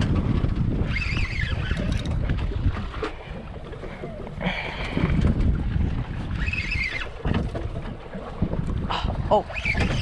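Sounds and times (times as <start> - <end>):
wind buffeting microphone: 0.0 - 10.0
fishing reel cranking: 0.8 - 2.3, 6.3 - 7.1, 9.5 - 10.0.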